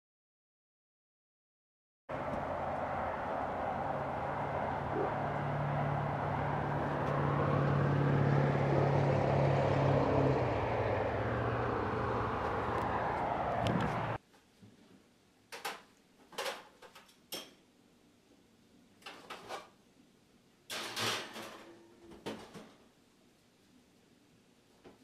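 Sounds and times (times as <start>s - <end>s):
low engine-like rumble: 2.1s - 14.2s.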